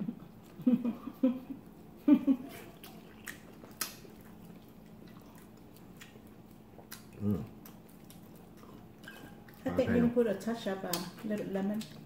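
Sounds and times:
quiet chewing with mouth clicks: 1.6s - 12.0s
person murmuring: 7.2s - 7.5s.

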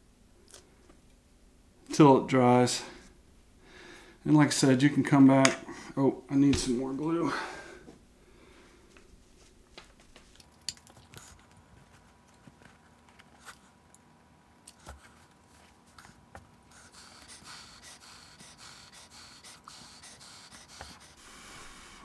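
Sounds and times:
soft rustling: 7.9s - 10.5s.

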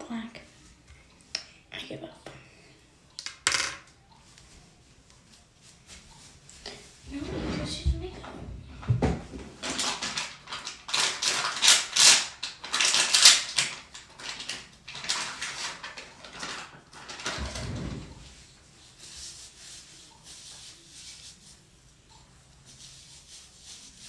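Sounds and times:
scratchy rubbing and rustling: 14.3s - 21.8s, 22.6s - 24.0s.

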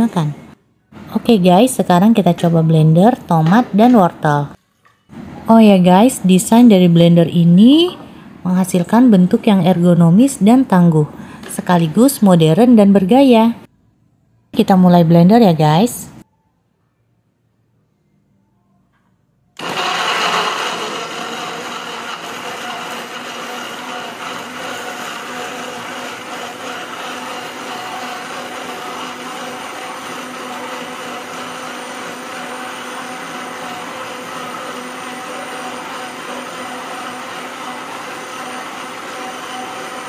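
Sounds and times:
blender motor running: 19.6s - 40.0s.

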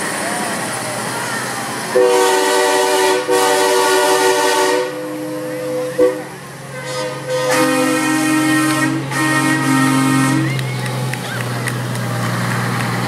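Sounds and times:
low hum of passing trucks: 0.0s - 13.0s
truck air horns: 1.9s - 10.7s.

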